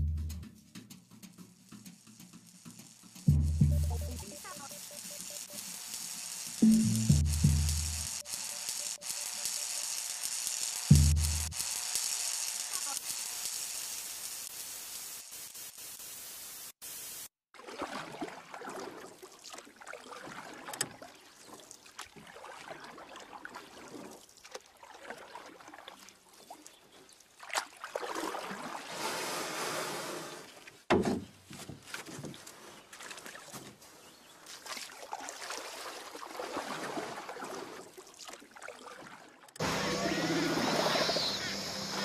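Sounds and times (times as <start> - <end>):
hiss: 1.7 - 17.4, 29.0 - 30.5, 39.6 - 42.0
river water sloshing and lapping: 17.5 - 30.9, 31.5 - 42.0
knocks: 30.9 - 31.3.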